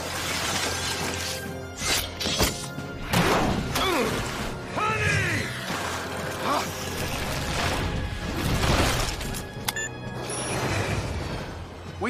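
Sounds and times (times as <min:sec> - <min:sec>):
ice crackling: 0:00.0 - 0:02.2
orchestral action music: 0:00.0 - 0:12.0.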